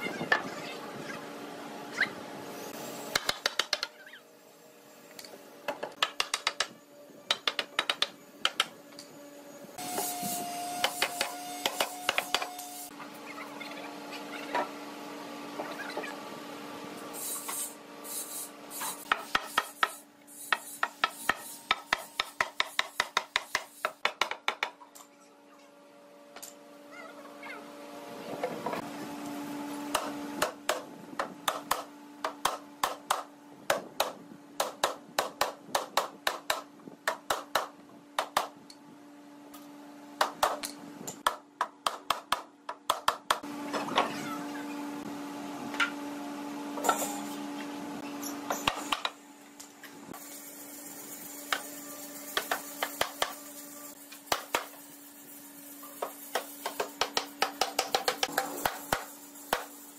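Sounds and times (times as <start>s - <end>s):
hammer striking wood: 20.5s - 24.8s, 56.3s - 59.7s.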